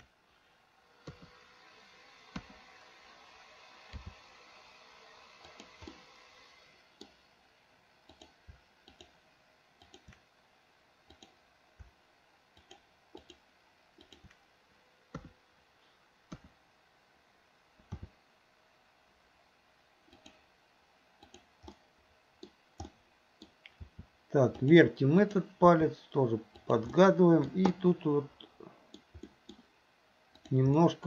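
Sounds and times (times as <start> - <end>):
mouse and keyboard clicking: 5.4 - 6.0, 8.1 - 9.1, 9.8 - 10.2, 11.1 - 11.4, 12.6 - 13.4, 14.0 - 14.4, 20.1 - 20.4.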